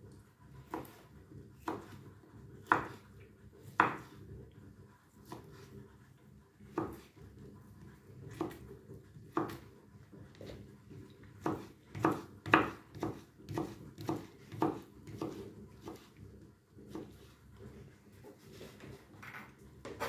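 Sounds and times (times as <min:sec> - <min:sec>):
knife chopping on cutting board: 0:00.7 - 0:02.0, 0:02.6 - 0:04.2, 0:05.2 - 0:05.6, 0:06.7 - 0:07.1, 0:08.3 - 0:08.7, 0:09.3 - 0:09.7, 0:11.4 - 0:16.2, 0:16.9 - 0:17.3.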